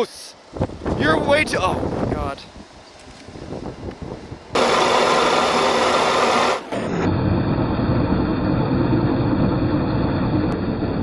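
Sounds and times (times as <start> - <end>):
loud rushing noise: 3.4 - 11.0.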